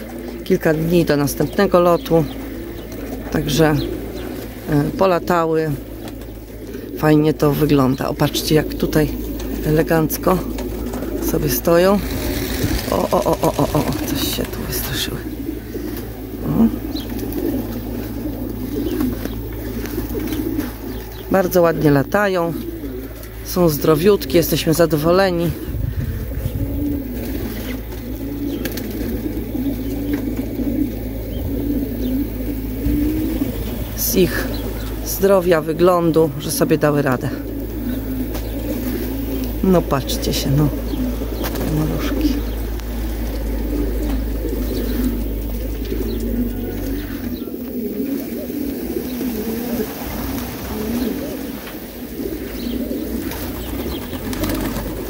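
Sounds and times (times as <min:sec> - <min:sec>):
pigeons cooing: 0:00.0 - 0:55.0
low rumble: 0:25.5 - 0:35.1, 0:37.4 - 0:47.8.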